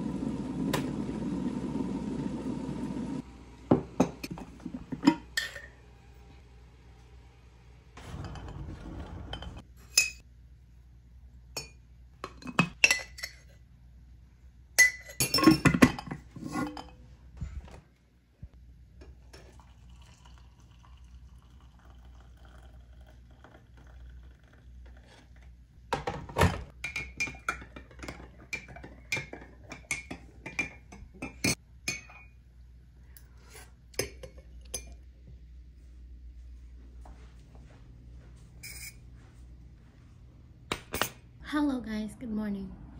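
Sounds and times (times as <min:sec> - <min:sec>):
hot water pouring from kettle: 0:00.0 - 0:03.3, 0:19.2 - 0:25.4.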